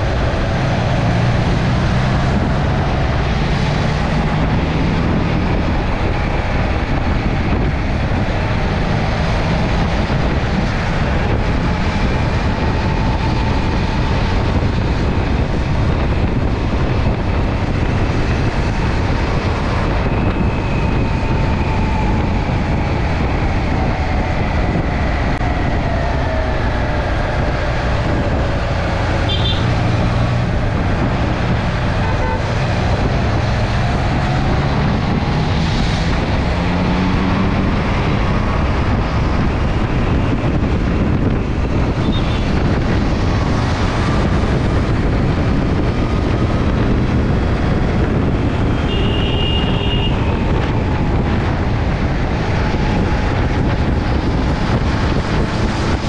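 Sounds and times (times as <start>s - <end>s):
motorcycle engine drone: 0.0s - 56.0s
traffic: 0.0s - 56.0s
wind and road rush: 0.0s - 56.0s.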